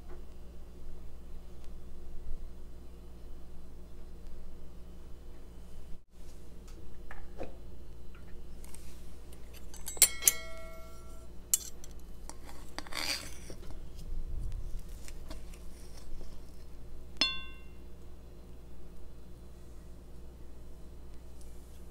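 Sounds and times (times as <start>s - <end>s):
cutlery scraping plate: 9.5s - 13.8s
cutlery clinking on plate: 9.6s - 13.2s, 17.2s - 17.7s.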